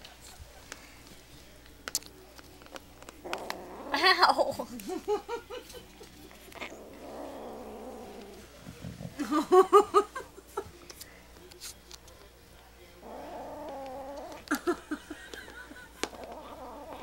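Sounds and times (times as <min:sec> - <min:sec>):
kitten growling: 0:03.2 - 0:04.7, 0:06.3 - 0:09.2, 0:13.0 - 0:14.8, 0:16.0 - 0:17.0.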